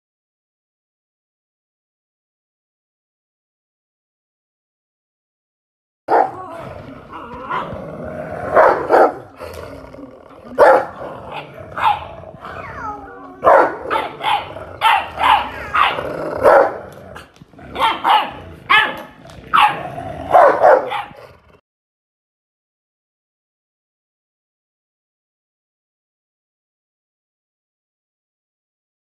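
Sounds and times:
puppy barking: 6.1 - 6.4, 7.5 - 7.8, 8.5 - 9.3, 10.5 - 16.9, 17.7 - 21.2
dog growling: 6.1 - 21.6.

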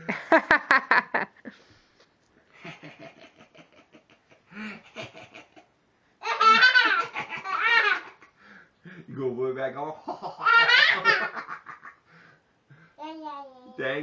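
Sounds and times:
toddler laughing: 6.2 - 8.3, 10.2 - 11.7.

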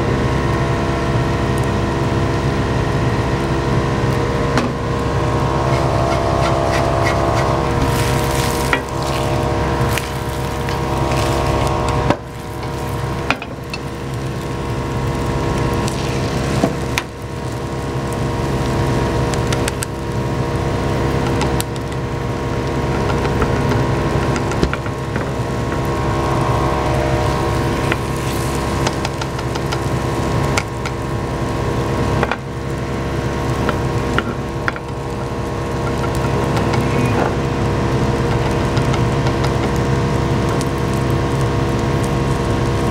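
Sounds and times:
kitchen exhaust fan running: 0.0 - 42.9
egg sizzling in a pan: 4.8 - 42.9.

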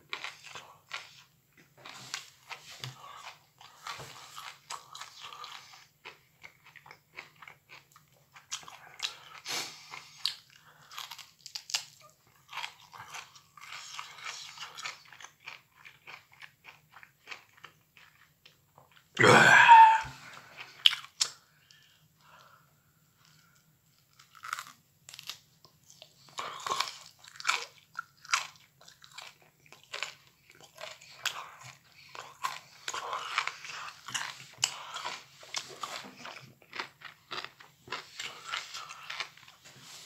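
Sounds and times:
chewing crunchy broccoli: 0.0 - 21.8, 23.2 - 40.0
short vocal noise: 19.2 - 20.3.

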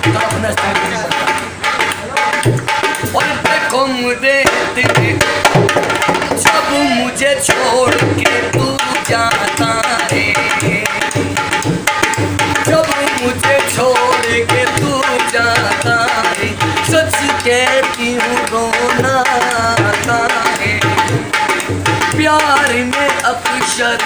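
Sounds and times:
barrel hand drum rhythm: 0.0 - 24.0.

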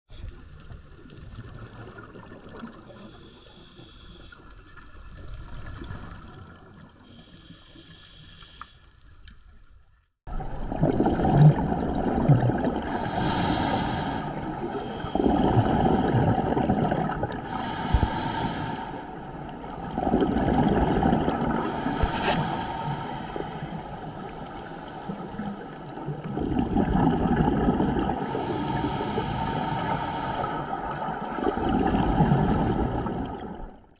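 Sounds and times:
scuba regulator breathing: 3.0 - 4.5, 7.0 - 9.0, 12.7 - 26.4, 28.0 - 33.1
bubbles gurgling underwater: 10.3 - 18.4, 19.1 - 22.7, 23.4 - 29.1, 30.0 - 33.9.

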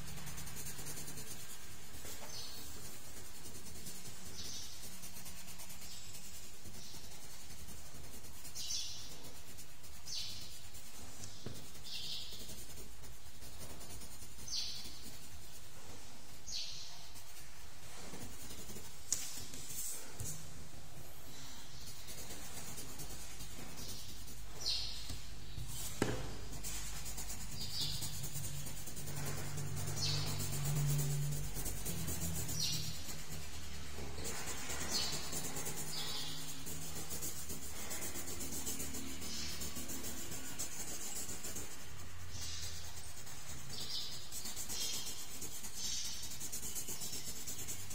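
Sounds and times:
colored pencil scratching on paper: 0.0 - 47.9.

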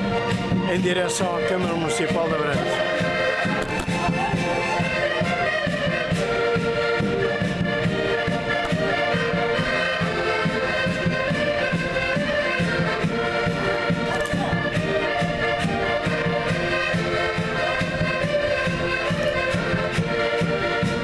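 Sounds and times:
concertinas playing a tune: 0.0 - 21.0.

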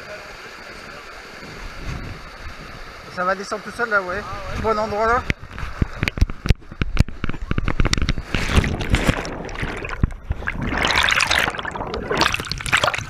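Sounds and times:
knocks and scrapes on camera: 5.4 - 10.3
rushing splashing water: 7.8 - 13.0.

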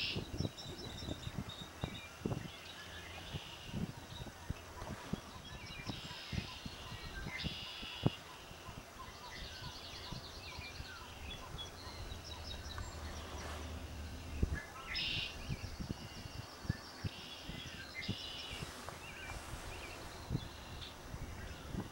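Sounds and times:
songbirds chirping and trilling: 0.0 - 21.9
low outdoor rumble: 8.8 - 17.0.

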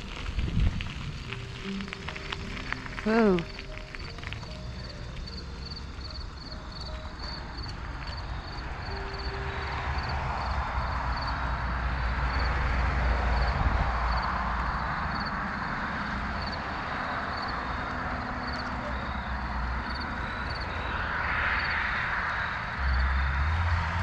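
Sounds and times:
steady rolling hiss: 0.0 - 23.8
wind noise on microphone: 0.0 - 24.0
faint high chirp: 17.6 - 21.8.

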